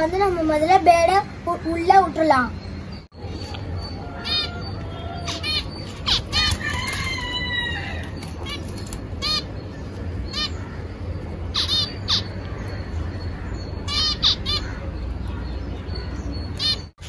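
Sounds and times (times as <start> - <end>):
finches chirping: 0.0 - 17.0
steady low rumble: 8.0 - 16.7.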